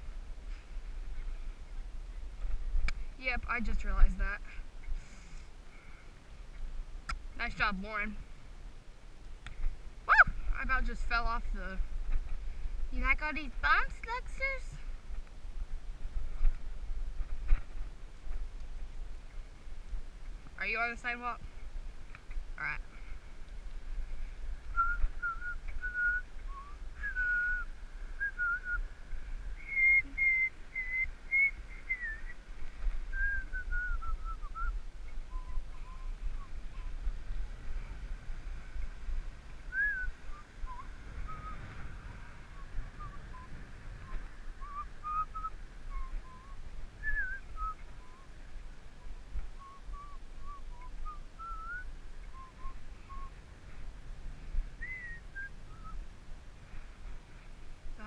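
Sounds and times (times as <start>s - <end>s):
wind rumble on microphone: 0.0s - 58.0s
person whistling a tune: 29.6s - 32.2s, 49.6s - 51.8s.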